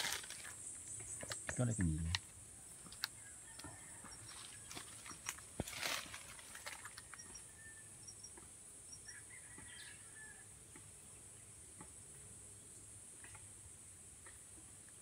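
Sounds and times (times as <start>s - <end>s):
insects buzzing: 0.0s - 15.0s
bird chirps: 7.0s - 10.0s.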